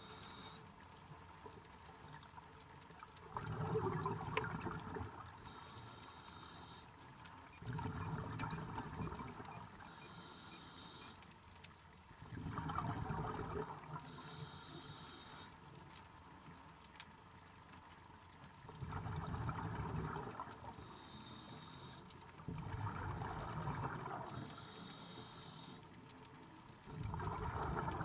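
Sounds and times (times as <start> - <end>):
quiet water noise: 0.0 - 28.0
underwater bubbles from regulator: 3.0 - 5.6, 7.5 - 10.0, 12.2 - 14.2, 18.7 - 20.9, 22.4 - 24.7, 26.8 - 28.0.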